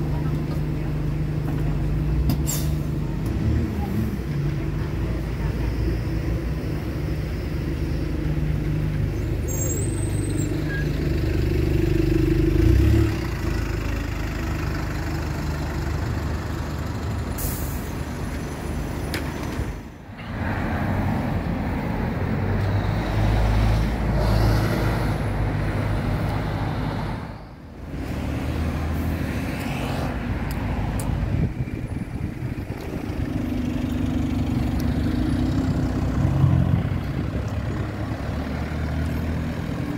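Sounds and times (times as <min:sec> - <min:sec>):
bus engines humming: 0:00.0 - 0:39.9
air brake hiss: 0:17.4 - 0:18.0.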